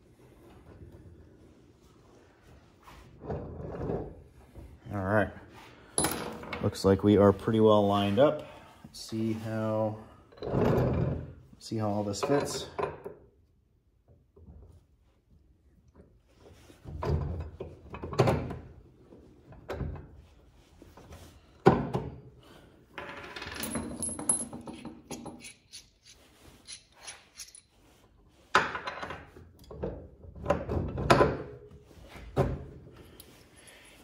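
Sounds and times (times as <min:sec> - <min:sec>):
metal bolts clinking: 0:23.4 - 0:27.8.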